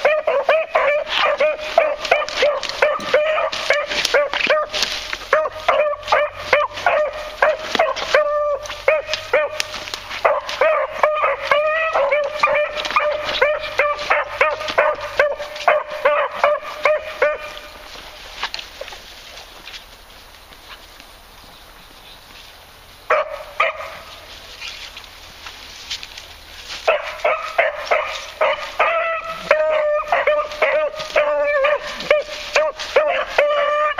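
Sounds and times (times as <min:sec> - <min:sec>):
hounds baying: 0:00.0 - 0:19.6, 0:23.1 - 0:24.6, 0:26.6 - 0:33.9.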